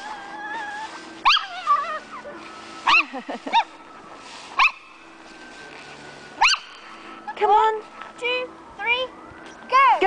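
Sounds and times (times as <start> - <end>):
small dog yapping: 1.2 - 2.0.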